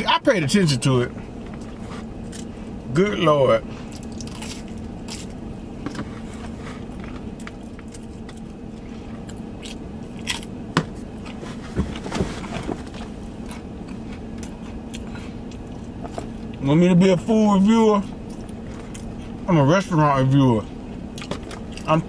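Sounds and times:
steady low hum: 0:00.0 - 0:22.0
person chewing pizza: 0:01.2 - 0:02.8, 0:03.6 - 0:16.6, 0:18.0 - 0:19.5, 0:21.0 - 0:22.0.

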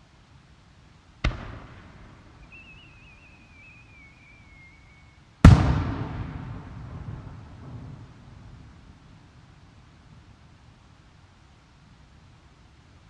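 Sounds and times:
firework whistle falling in pitch: 0:02.4 - 0:06.0
firework launch thump: 0:05.5 - 0:07.4.

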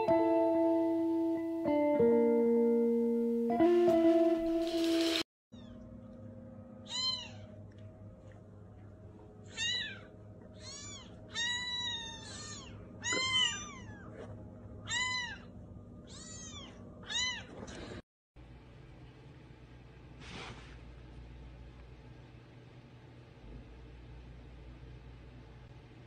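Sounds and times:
faint steady hum: 0:05.6 - 0:26.0
kittens mewing: 0:06.9 - 0:07.6, 0:09.5 - 0:18.0.

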